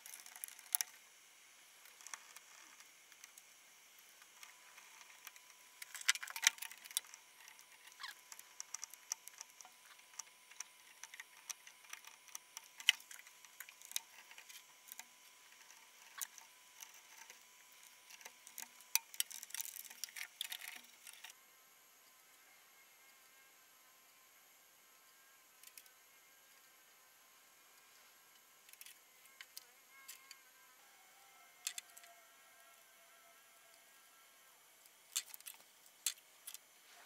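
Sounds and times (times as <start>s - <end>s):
wires clicking into connectors: 0.0s - 1.0s, 4.3s - 21.3s, 31.6s - 32.1s, 35.1s - 36.6s.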